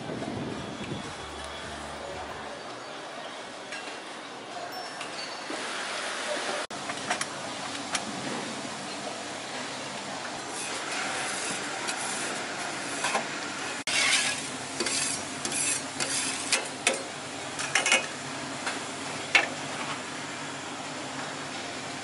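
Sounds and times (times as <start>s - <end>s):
metal scraper on hot griddle: 13.9s - 16.6s.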